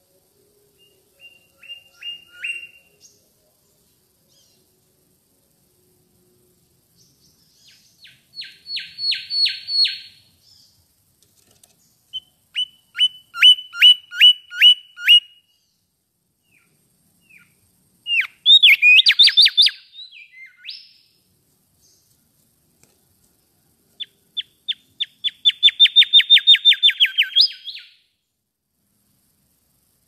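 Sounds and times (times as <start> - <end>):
bird singing clear whistles: 0.8 - 3.2, 7.0 - 10.7, 12.1 - 15.7, 18.1 - 21.1, 24.0 - 28.1.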